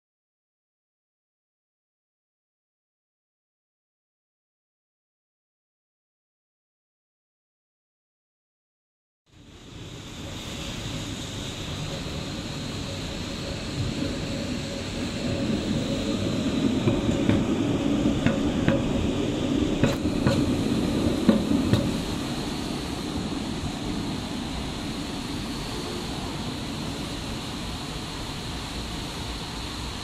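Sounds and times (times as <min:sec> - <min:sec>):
tram rumbling past: 0:09.4 - 0:30.0
wheels clacking on track: 0:11.6 - 0:29.9.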